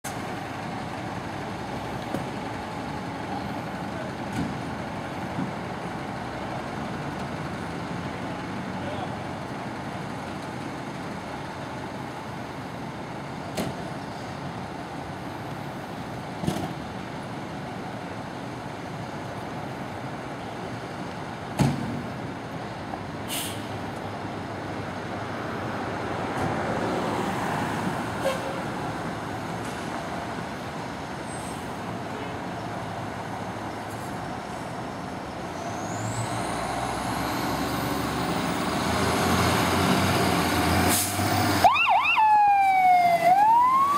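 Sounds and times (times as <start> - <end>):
city traffic noise: 0.0 - 43.9.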